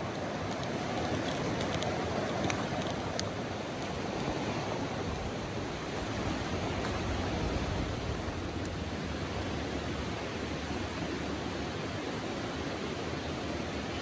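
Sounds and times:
faint wood fire crackles: 0.0 - 6.0
river rushing over rocks: 0.0 - 14.0.

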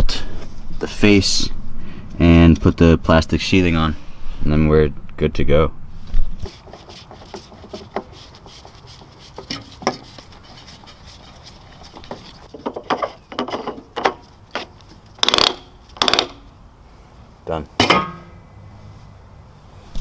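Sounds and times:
small ticks and scrapes: 6.4 - 16.2
hand screwdriver driving screws: 11.5 - 16.4.

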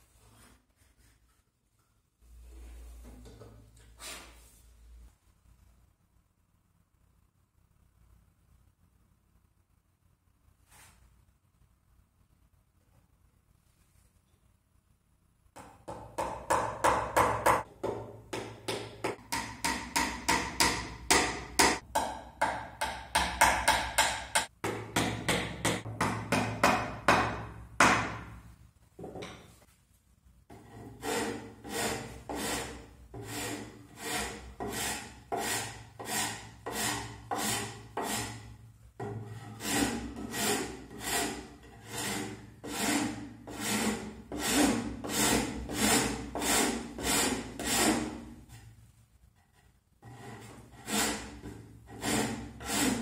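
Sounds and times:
mallet tapping wooden dowels: 15.6 - 28.2.

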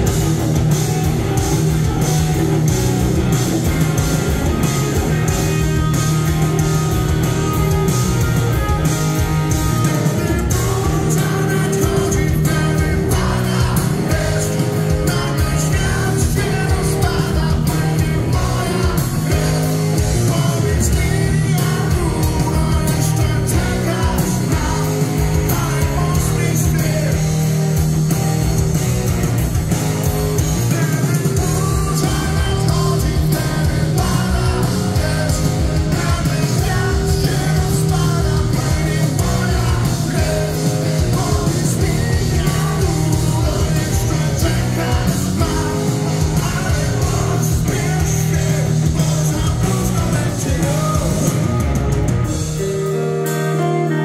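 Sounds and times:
rock band playing live: 0.0 - 54.0
man singing: 9.9 - 27.6, 30.6 - 51.6.

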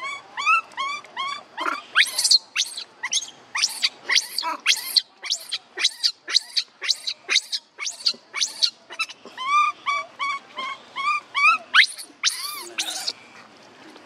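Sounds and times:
baby monkey crying: 0.0 - 13.1.

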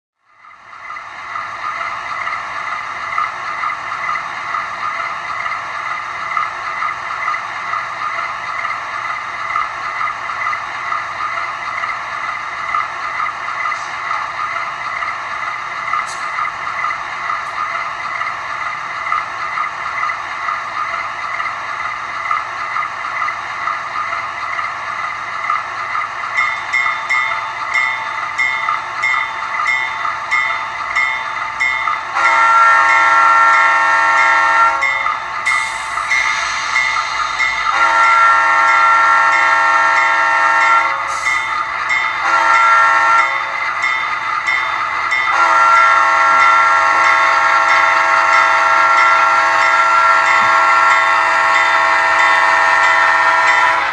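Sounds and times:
train horn blasts: 32.1 - 35.0, 37.6 - 41.3, 42.2 - 43.6, 45.2 - 53.9.

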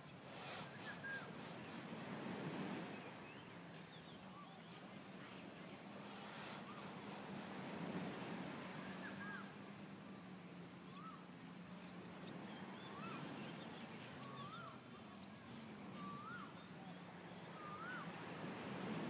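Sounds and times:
soft hiss: 0.0 - 19.0
bird whistling faintly: 0.3 - 2.2, 8.8 - 9.5, 10.9 - 11.2, 12.8 - 13.6, 15.9 - 18.2.

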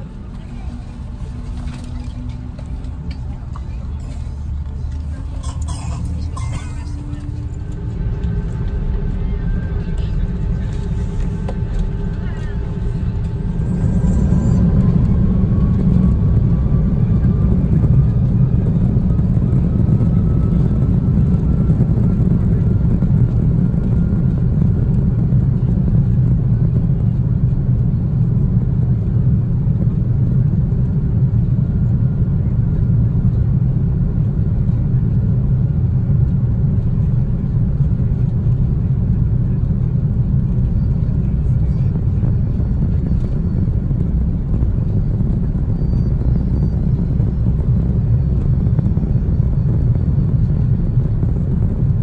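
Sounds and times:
airplane cabin roar: 0.0 - 52.0
faint rising whine: 6.0 - 23.1.

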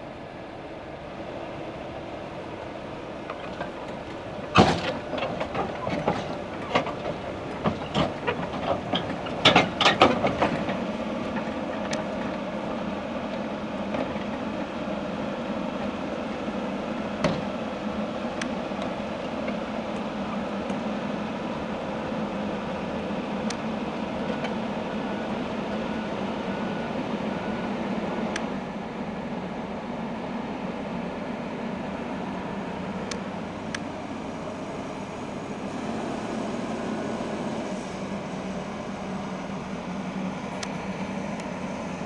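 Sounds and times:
diesel engine running: 0.0 - 42.0
steel tracks clanking: 3.4 - 12.2.

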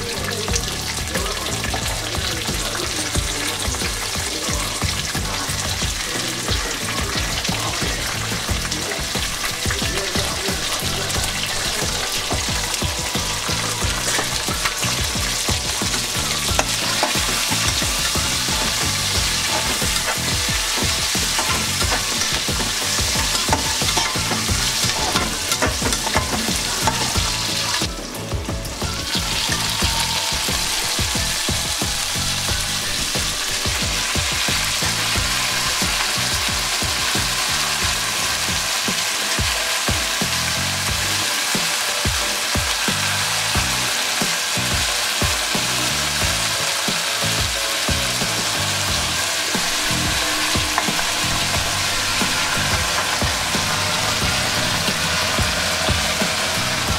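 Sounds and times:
vegetables sizzling in hot oil: 0.0 - 56.9
metal spatula scraping pan: 10.8 - 27.9, 49.0 - 56.9.

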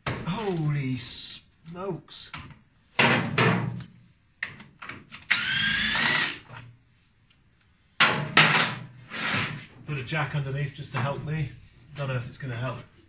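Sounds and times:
power tool whine: 5.3 - 6.4.

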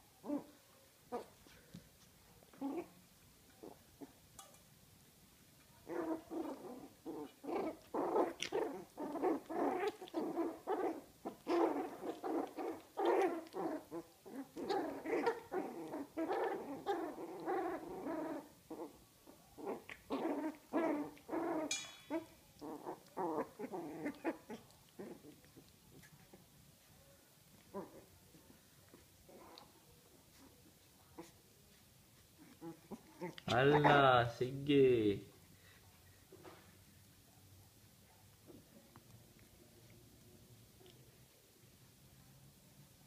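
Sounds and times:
puppies growling and grunting: 0.2 - 1.7, 2.5 - 4.2, 5.8 - 34.1
puppy yelp: 5.9 - 19.0, 32.4 - 34.0.

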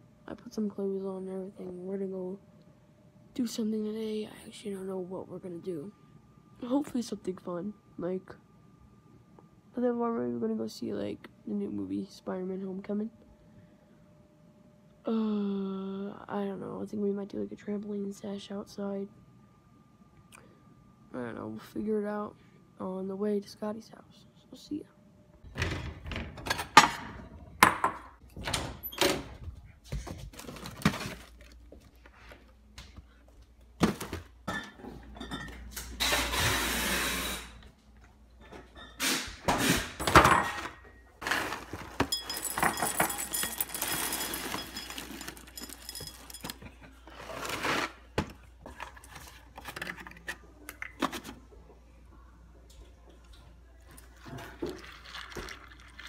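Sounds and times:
ceramic bowl clinking: 42.0 - 46.7
dry cereal pouring into bowl: 43.5 - 46.0.

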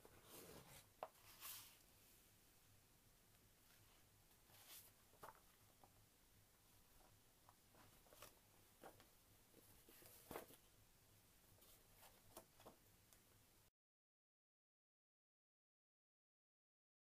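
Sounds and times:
paper rustling: 4.4 - 5.9, 7.7 - 10.6.

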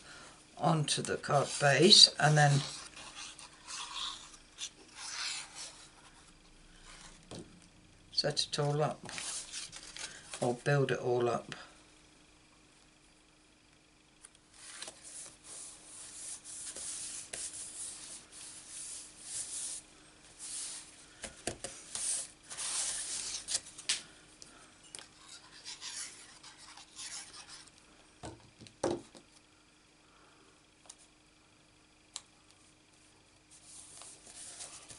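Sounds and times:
hands rubbing paper: 1.3 - 6.3, 14.6 - 19.8, 25.2 - 27.7
soft knocks of card pieces: 21.2 - 22.1.

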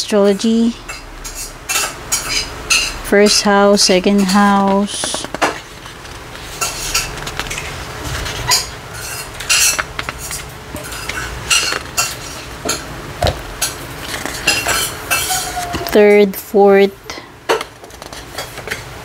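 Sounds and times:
paper pages turning: 4.4 - 12.4, 13.9 - 14.9.

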